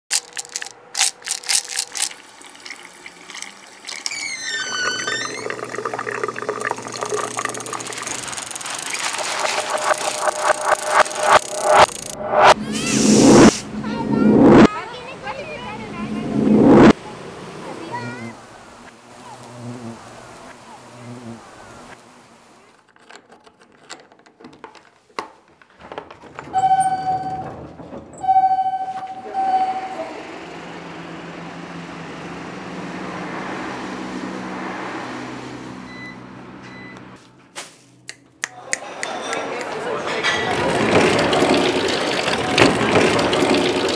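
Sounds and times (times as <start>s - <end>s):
sharp clicks: 0.1s - 2.2s, 7.3s - 12.6s
stones clicking together: 0.1s - 2.2s
small stones rolling: 0.1s - 2.8s
rumbling noise: 4.9s - 14.7s, 15.5s - 17.0s
steady pitched tone: 5.7s - 14.7s, 16.1s - 17.0s, 28.2s - 30.6s
falling ringing tone: 26.6s - 30.6s.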